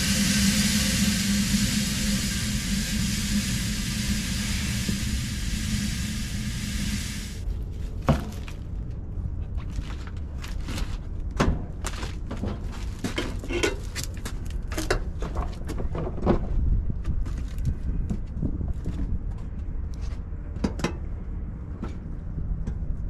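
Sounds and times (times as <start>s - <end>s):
gas hissing through a line: 0.0s - 7.4s
wind rumble on microphone: 13.6s - 23.0s.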